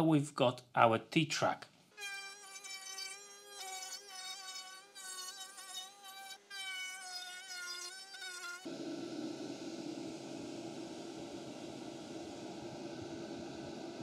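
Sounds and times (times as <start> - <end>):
steady rushing noise: 9.3 - 14.0.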